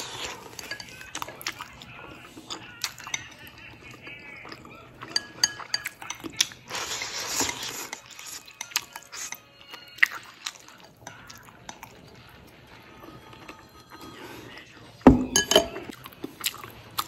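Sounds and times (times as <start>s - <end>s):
slurping noodles: 0.0s - 2.8s, 6.4s - 9.4s.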